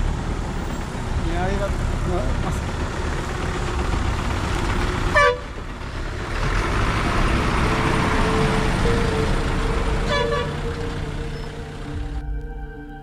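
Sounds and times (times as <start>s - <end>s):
moving vehicle engine and tyres: 0.0s - 13.0s
vehicle horn toots: 5.1s - 5.6s, 8.2s - 12.1s.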